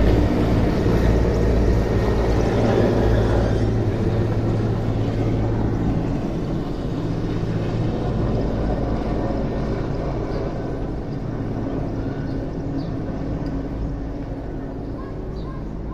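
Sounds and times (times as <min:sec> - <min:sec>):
helicopter flying over: 0:00.0 - 0:15.9.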